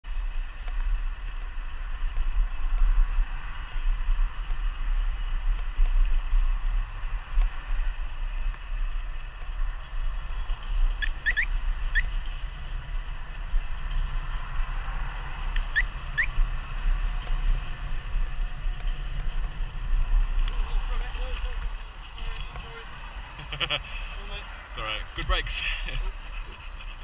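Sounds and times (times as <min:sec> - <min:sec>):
bicycle tyres hissing: 0:00.1 - 0:24.7
wind buffeting microphone: 0:00.2 - 0:27.0
high rising chirps: 0:10.8 - 0:12.2, 0:15.5 - 0:16.4.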